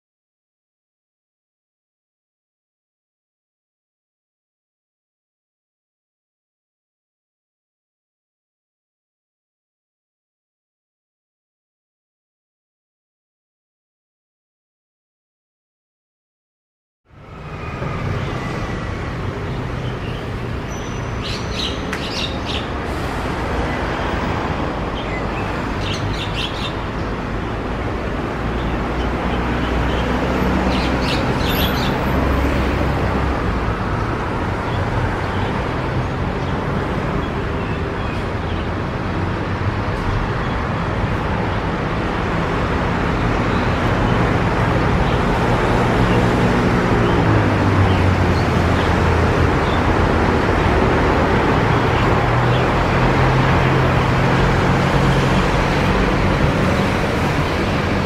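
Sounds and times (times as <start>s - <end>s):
road traffic rumble: 17.1s - 58.0s
bird high chirping calls: 19.5s - 22.8s, 24.9s - 27.2s, 30.7s - 32.1s.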